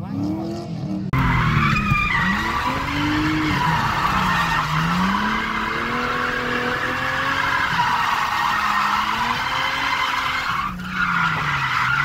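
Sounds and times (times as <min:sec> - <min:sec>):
car engine revving: 0:00.0 - 0:12.0
tyres squealing: 0:01.2 - 0:12.0.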